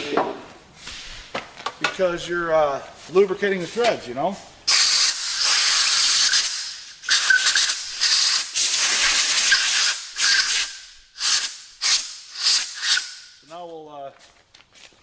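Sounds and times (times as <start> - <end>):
air blow gun hissing bursts: 4.6 - 13.4.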